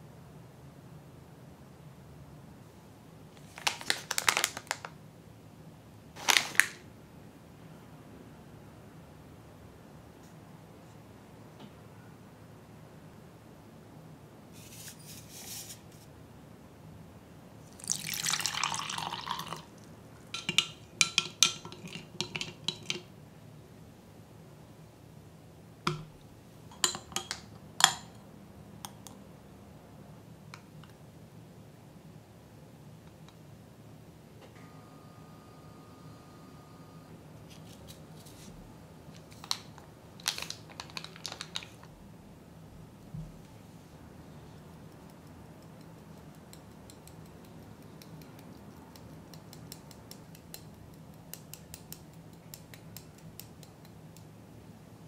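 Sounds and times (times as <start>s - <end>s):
foil sachets rustling: 3.4s - 4.9s, 6.2s - 6.8s, 39.2s - 41.9s
paper packet tearing and crinkling: 3.4s - 4.9s, 6.2s - 6.8s, 39.3s - 41.9s
milk pouring into glass jug: 17.7s - 19.8s.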